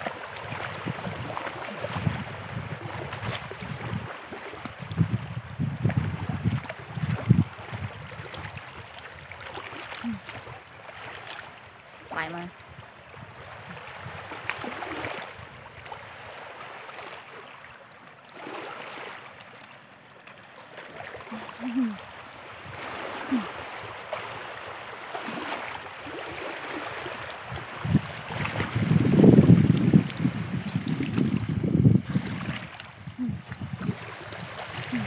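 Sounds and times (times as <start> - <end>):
small feet splashing in water: 6.4 - 11.6, 18.3 - 29.0, 30.3 - 35.0.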